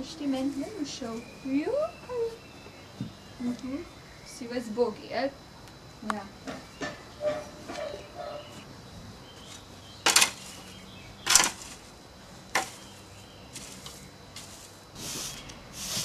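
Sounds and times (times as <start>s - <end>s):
stiff broom swishing on floor: 12.5s - 16.0s.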